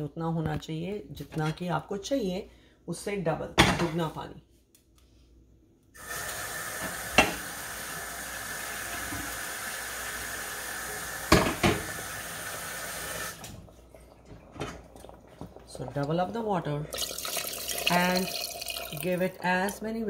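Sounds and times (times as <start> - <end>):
water running from a tap: 6.0 - 13.6, 16.9 - 19.4.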